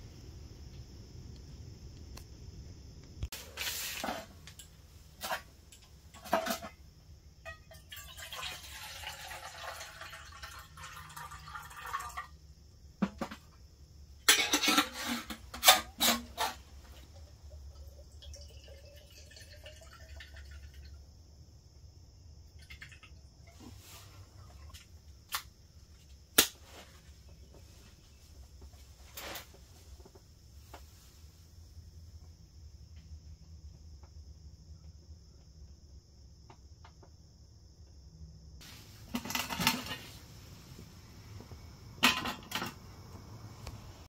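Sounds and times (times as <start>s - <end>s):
rustling: 3.3s - 4.5s
metal cup and stove clinking: 14.2s - 16.6s, 39.1s - 40.1s, 42.0s - 42.8s.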